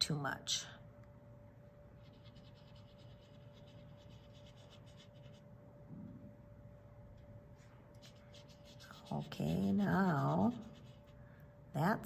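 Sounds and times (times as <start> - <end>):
faint steady hum: 0.0 - 12.0
paint brush scratching: 2.0 - 5.4, 8.0 - 11.2.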